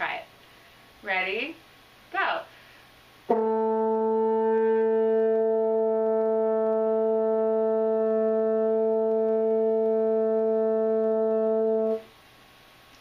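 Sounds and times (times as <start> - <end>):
french horn long note: 3.3 - 12.1.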